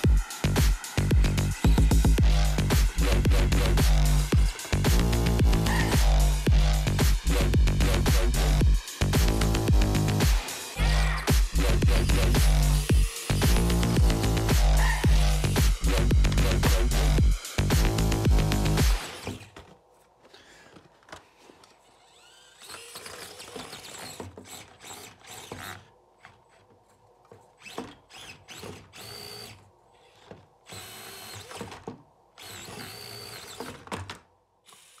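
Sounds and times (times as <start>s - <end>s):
music: 0.0s - 19.2s
small electric motor and gears whining: 0.0s - 19.6s, 21.6s - 26.7s, 27.4s - 33.9s, 34.6s - 35.0s.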